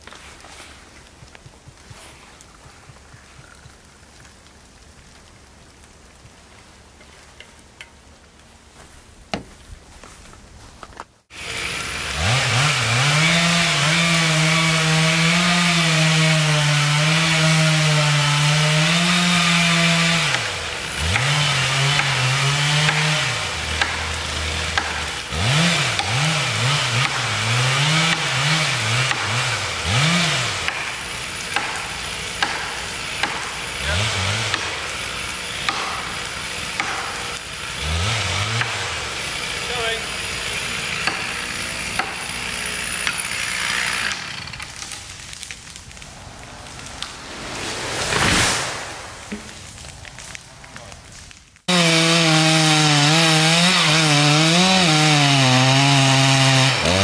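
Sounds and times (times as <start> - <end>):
chainsaw cutting and revving: 11.3 - 48.8, 51.7 - 57.0.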